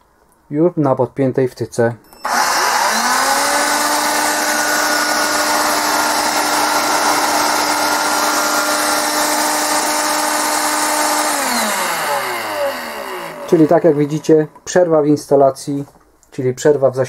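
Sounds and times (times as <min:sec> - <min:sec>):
vacuum cleaner motor whine: 0:02.2 - 0:14.4.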